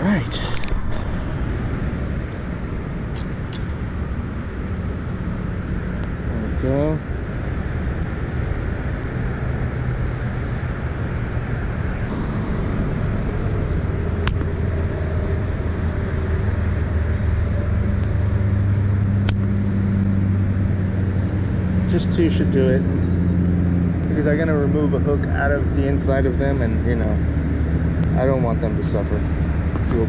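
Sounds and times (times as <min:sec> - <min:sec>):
engine humming: 0:00.0 - 0:30.0
sharp clicks: 0:19.2 - 0:19.5.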